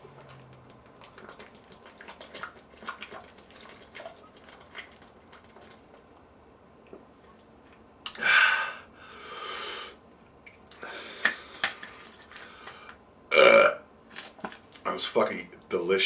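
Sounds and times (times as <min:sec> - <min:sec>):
man gasping and exhaling: 0:08.1 - 0:10.0, 0:10.8 - 0:11.7.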